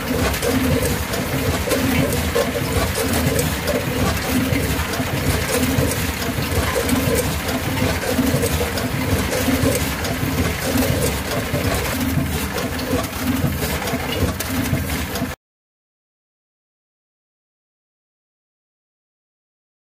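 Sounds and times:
bagging machine running: 0:00.0 - 0:15.4
sharp machine clicks: 0:00.0 - 0:15.4.

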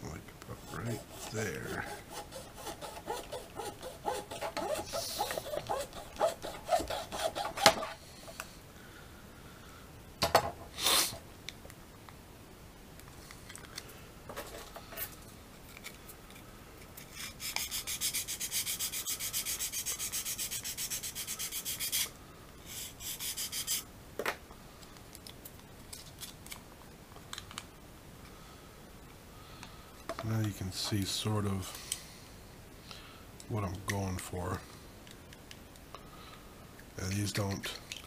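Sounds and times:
rasping on plastic: 0:00.6 - 0:08.0.

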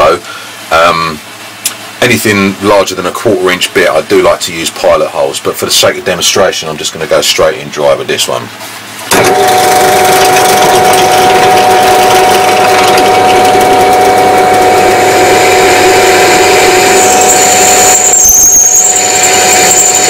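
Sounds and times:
drill press motor humming: 0:09.0 - 0:20.0
high-pitched drill bit squeal: 0:10.7 - 0:20.0.

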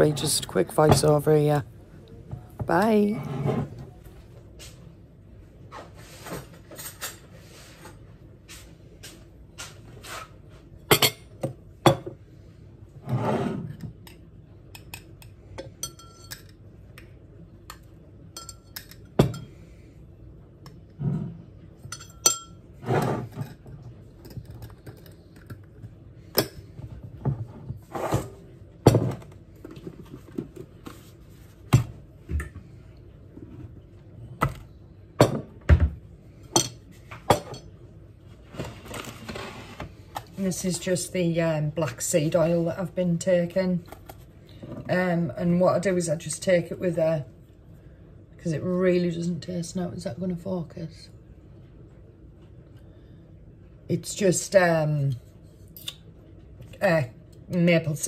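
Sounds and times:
metal spoon clinking glass: 0:18.4 - 0:19.5, 0:21.9 - 0:22.6.

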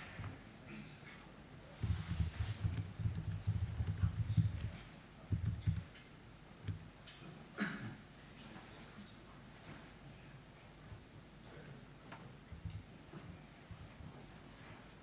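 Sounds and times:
laptop keyboard tapping: 0:01.8 - 0:06.0, 0:06.6 - 0:06.9.

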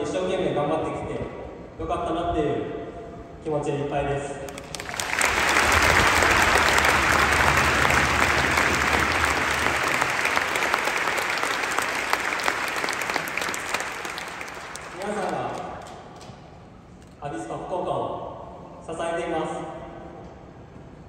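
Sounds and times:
crowd applauding: 0:04.5 - 0:16.3.

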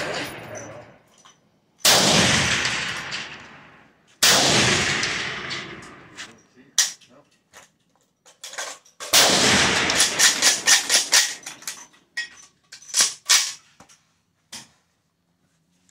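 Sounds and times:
rifle shots: 0:01.8 - 0:06.2, 0:09.1 - 0:11.5.

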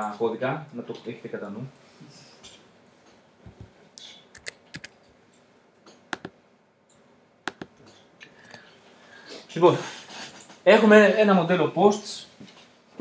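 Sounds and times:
computer keyboard keystrokes: 0:04.4 - 0:04.9, 0:07.5 - 0:07.8.

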